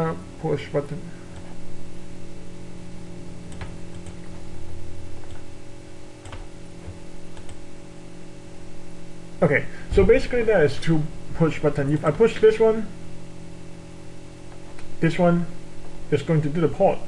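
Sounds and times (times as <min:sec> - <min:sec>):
low electrical hum: 0:00.0 - 0:17.0
computer mouse clicks: 0:06.2 - 0:07.6.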